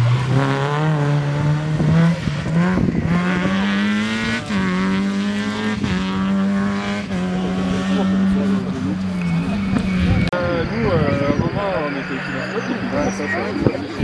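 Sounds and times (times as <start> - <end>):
rally car engine revving past: 0.0 - 10.3.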